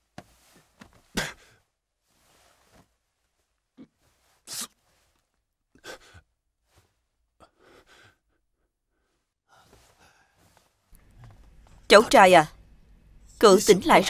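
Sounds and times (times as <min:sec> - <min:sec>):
man gasping breath: 0:05.8 - 0:06.3, 0:07.4 - 0:10.6.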